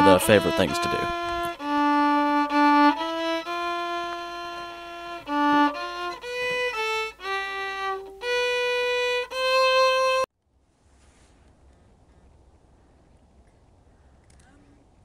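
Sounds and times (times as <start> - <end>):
solo violin slow melody: 0.0 - 10.3.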